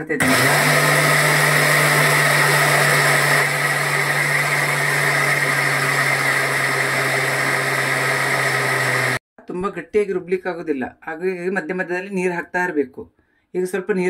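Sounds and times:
mixer grinder grinding batter: 0.2s - 9.2s.

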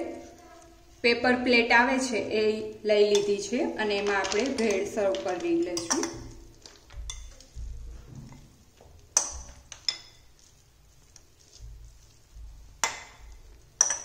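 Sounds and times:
spoon clinking against glass bowl: 5.8s - 7.4s, 9.2s - 10.3s, 12.8s - 14.0s
spoon scraping bowl: 9.2s - 14.0s.

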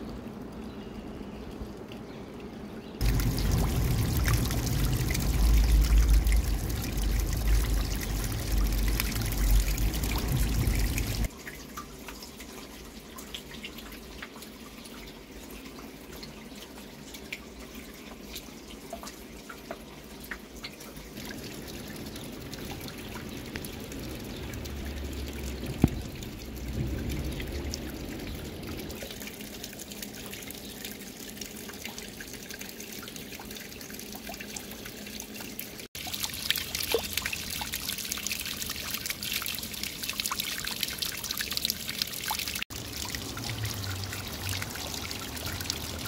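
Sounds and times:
water trickling over rock: 0.0s - 46.0s
water rushing: 3.0s - 11.3s, 21.1s - 31.8s, 35.9s - 46.0s.

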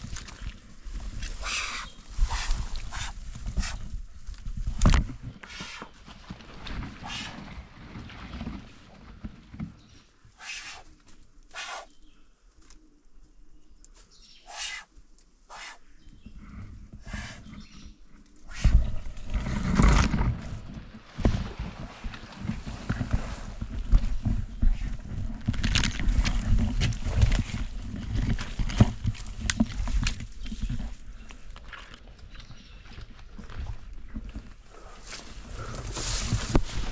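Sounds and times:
wind rumble on microphone: 0.0s - 5.4s, 16.0s - 36.9s
snake hissing: 1.4s - 3.8s, 7.0s - 7.4s, 10.4s - 10.9s, 11.5s - 12.0s, 14.4s - 14.9s, 15.5s - 15.9s, 17.0s - 17.5s, 18.5s - 18.9s
microphone handling noise: 18.5s - 30.9s.

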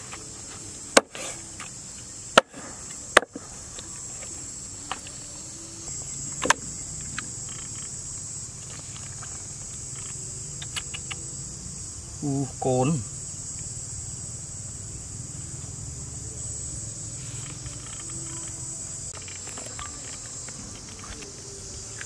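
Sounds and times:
high insect chirring: 0.0s - 22.0s
cleaver chopping on wooden board: 2.4s - 3.5s.

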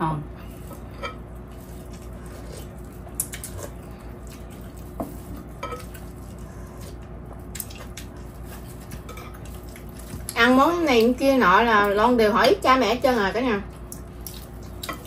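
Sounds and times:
faint steady hum: 0.0s - 15.0s
chewing: 0.5s - 10.4s, 13.7s - 15.0s.

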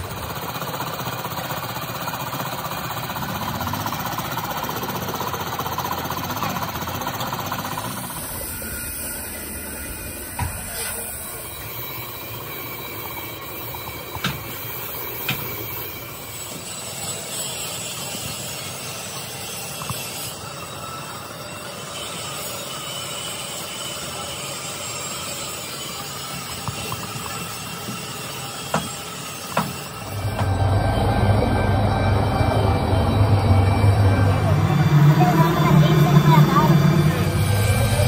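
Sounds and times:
factory machinery running: 0.0s - 38.0s
sharp knocks: 29.5s - 30.6s.

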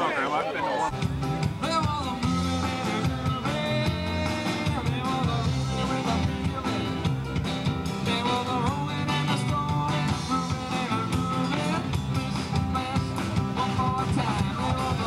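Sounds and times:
rock and roll band with singer: 0.7s - 15.0s.

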